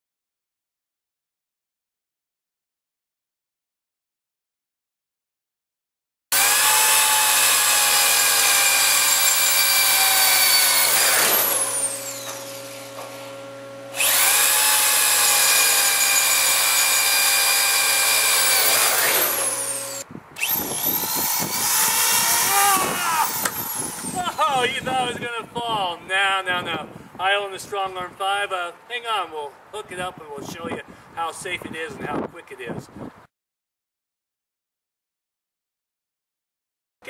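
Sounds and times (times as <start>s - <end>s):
electric drill boring into steel: 6.3s - 24.5s.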